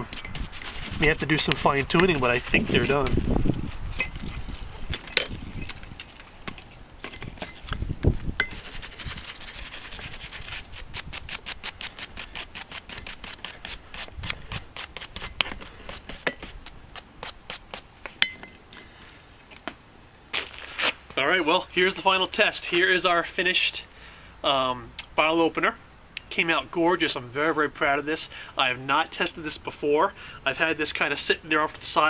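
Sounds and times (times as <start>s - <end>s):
wire brush scrubbing metal: 0.0s - 4.4s, 8.4s - 17.8s.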